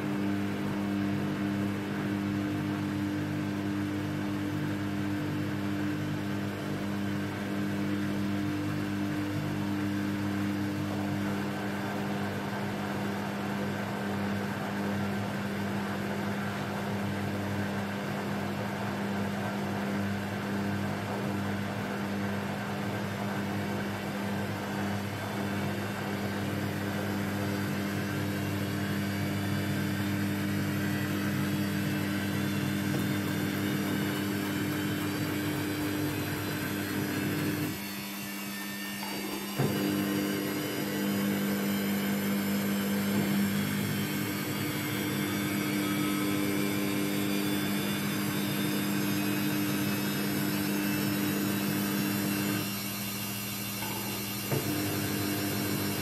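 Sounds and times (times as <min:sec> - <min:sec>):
washing machine drum spinning: 0:24.0 - 0:56.0.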